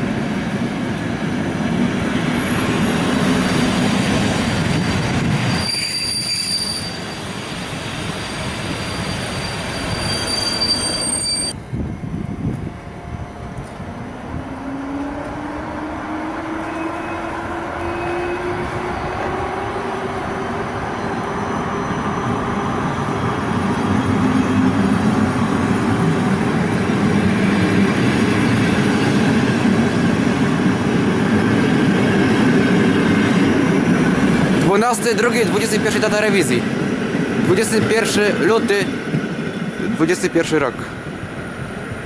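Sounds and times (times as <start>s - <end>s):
train wheels rumbling: 0.0s - 42.0s
rising electric motor whine: 11.7s - 20.0s.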